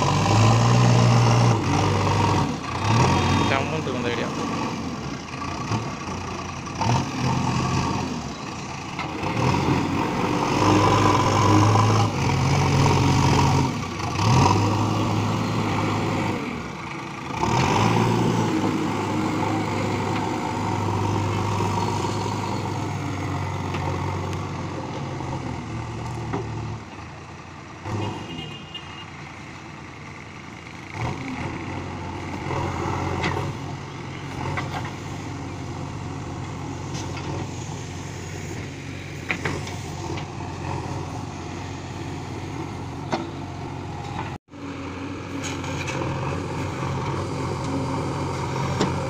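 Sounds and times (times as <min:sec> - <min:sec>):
diesel engine revving under load: 0:00.0 - 0:28.4, 0:29.1 - 0:49.0.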